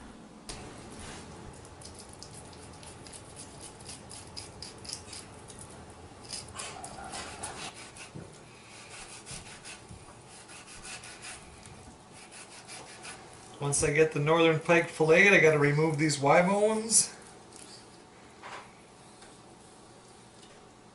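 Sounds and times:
knife scraping through fish: 2.3 - 5.3, 6.2 - 13.2.

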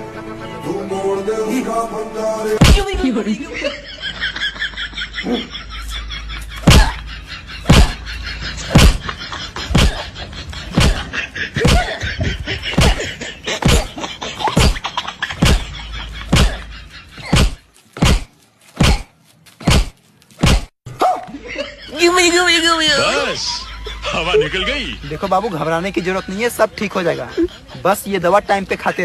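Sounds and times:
faint background music: 0.0 - 3.9.

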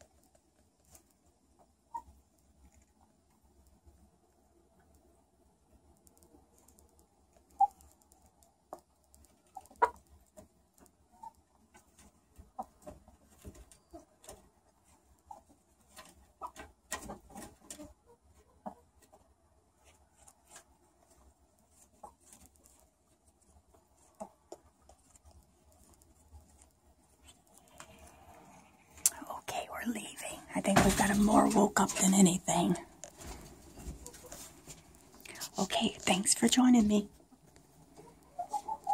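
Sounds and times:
chickens clucking and chirping: 37.4 - 38.9.

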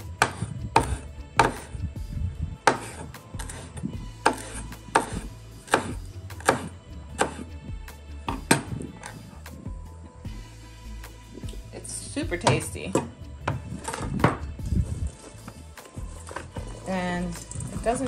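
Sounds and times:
background music: 0.0 - 18.0
knife chopping on cutting board: 0.2 - 1.7, 2.6 - 7.5, 8.3 - 9.1.

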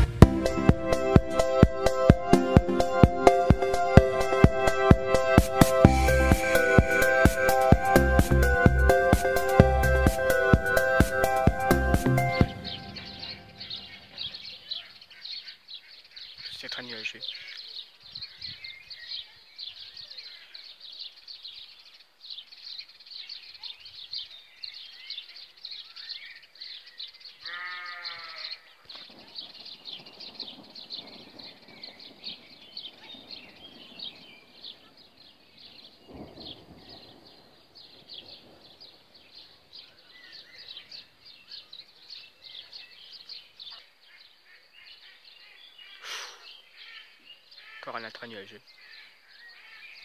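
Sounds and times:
small birds chirping: 5.9 - 50.0
farm animal bleating: 27.4 - 28.8.

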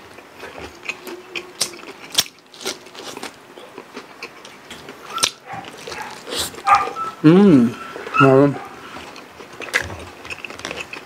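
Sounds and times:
people chewing and crunching: 0.0 - 11.0.

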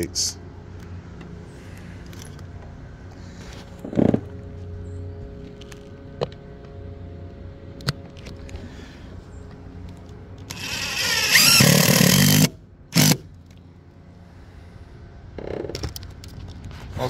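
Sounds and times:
impact driver whining: 10.5 - 13.3.

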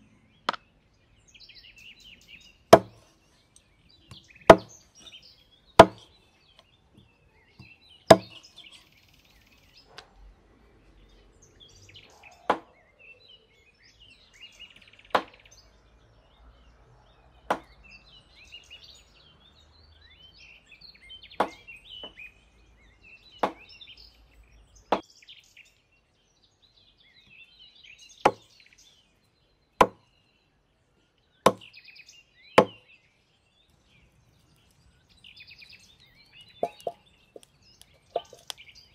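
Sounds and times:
small birds chirping: 0.0 - 38.9
cleaver chopping on wooden board: 2.7 - 3.0, 4.1 - 5.1, 5.8 - 6.1, 7.6 - 8.4, 21.4 - 21.6, 23.4 - 23.7, 28.3 - 28.5, 29.8 - 30.0, 31.5 - 31.7, 32.6 - 32.8, 36.6 - 38.6.

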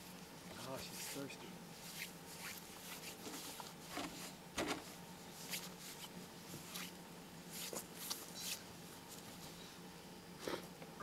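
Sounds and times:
faint steady hum: 0.0 - 11.0.

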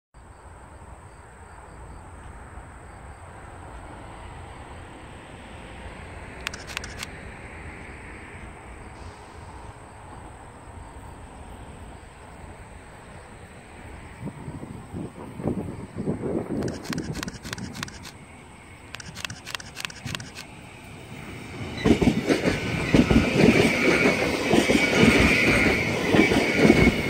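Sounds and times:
distant electric train rumble: 0.3 - 27.0
sharp clicks: 6.4 - 7.2, 16.6 - 18.2, 18.9 - 20.5
wind on microphone: 14.2 - 18.1.

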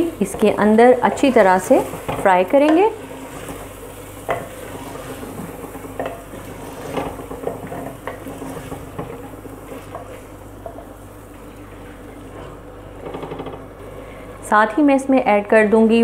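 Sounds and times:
chicken sizzling in oil: 0.0 - 13.5.

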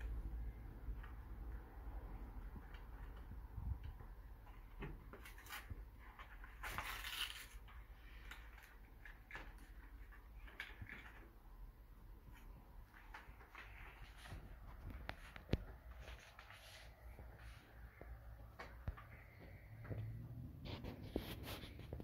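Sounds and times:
scraping rustle of packaging: 5.2 - 11.2.

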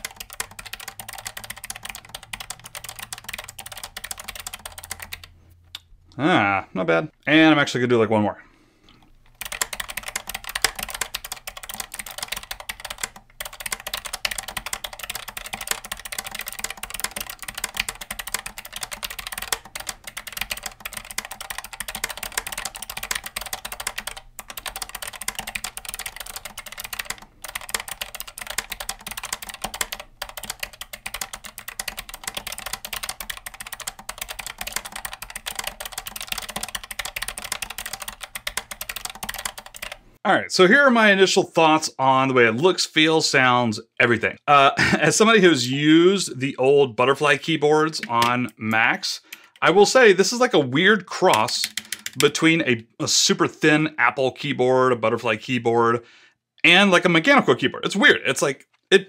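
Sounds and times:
mechanical keyboard typing: 0.0 - 5.4, 9.2 - 40.0, 47.9 - 49.9, 51.2 - 52.5.

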